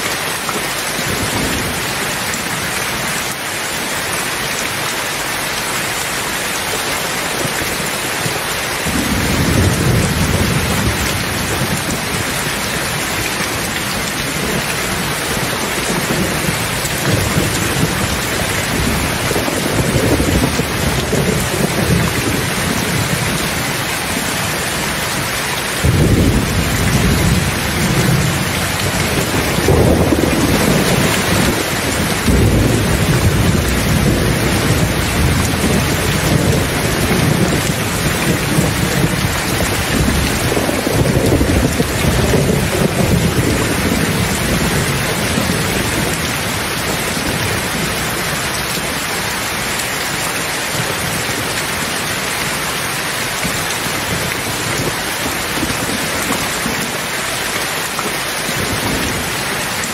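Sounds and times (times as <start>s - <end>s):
heavy rain: 0.0s - 59.9s
thunder rumbling: 8.8s - 48.9s.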